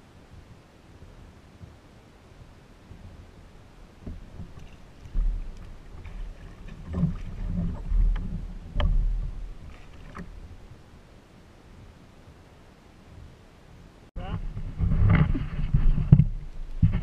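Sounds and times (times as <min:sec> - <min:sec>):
thumps and knocks on hull: 0:04.0 - 0:10.8, 0:14.4 - 0:17.0.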